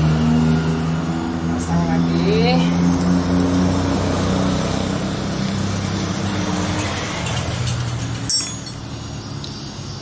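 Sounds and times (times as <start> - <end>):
metallic tool clink: 7.3 - 8.9.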